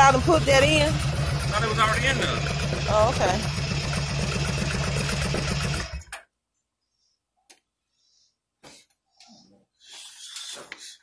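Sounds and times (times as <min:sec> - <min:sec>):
motorcycle engine idling: 0:00.0 - 0:06.2.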